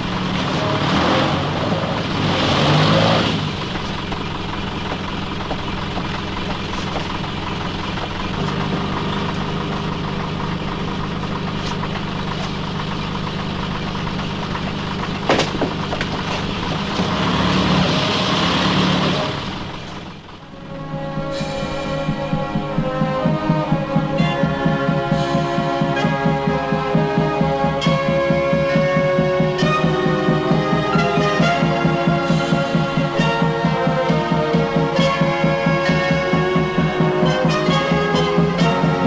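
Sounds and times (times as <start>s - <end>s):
vehicle engine idling: 0.0s - 39.0s.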